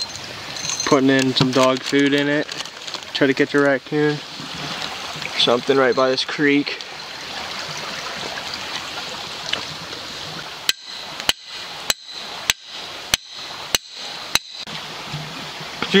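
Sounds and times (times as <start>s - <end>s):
creek water running: 0.0s - 16.0s
hatchet striking steel stake: 10.6s - 14.7s.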